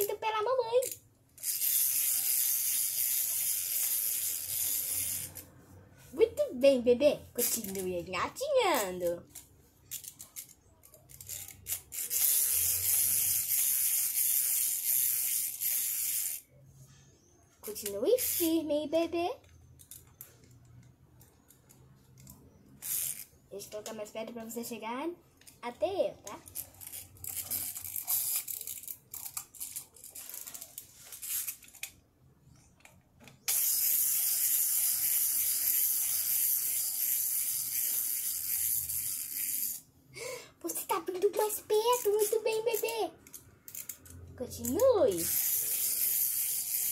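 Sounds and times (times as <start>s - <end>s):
toy gear mechanism whirring: 0.0s - 5.6s, 7.4s - 18.7s, 19.4s - 24.2s, 26.2s - 32.0s, 32.7s - 46.9s
plastic toys clicking on tile: 41.2s - 46.9s.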